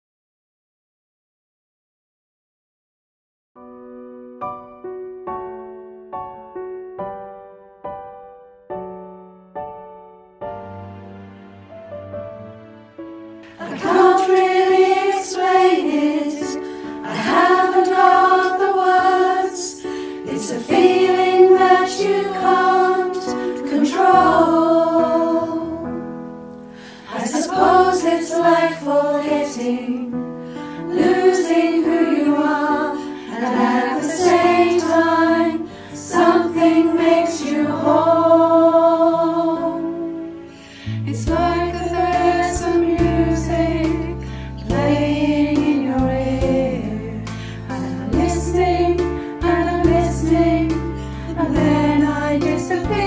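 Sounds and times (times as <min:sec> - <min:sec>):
instrumental backing track: 0:03.6 - 0:16.1
female choir singing: 0:13.4 - 0:26.0, 0:26.8 - 0:40.5, 0:41.1 - 0:53.0.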